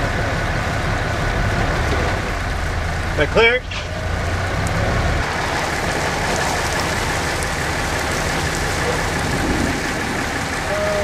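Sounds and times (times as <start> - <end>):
low rumble: 0.0 - 11.0
rain and wind on microphone: 0.0 - 11.0
faint ticks of raindrops: 3.8 - 11.0.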